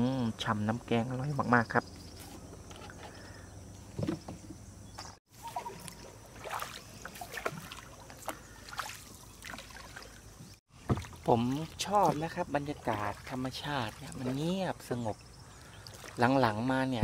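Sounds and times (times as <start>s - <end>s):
pole splashing in water: 5.3s - 14.6s.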